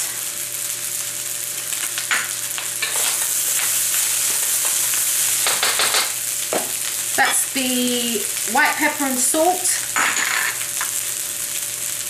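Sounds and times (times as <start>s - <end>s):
rice sizzling in a wok: 0.0s - 12.0s
spatula scraping wok: 2.6s - 6.2s.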